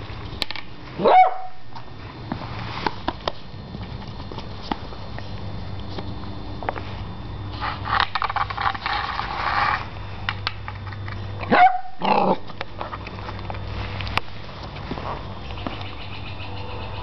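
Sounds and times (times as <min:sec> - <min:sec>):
puppy barking: 0:01.0 - 0:01.6, 0:11.5 - 0:12.4
clicks and scuffs: 0:01.7 - 0:11.3
puppy growling: 0:12.0 - 0:13.0.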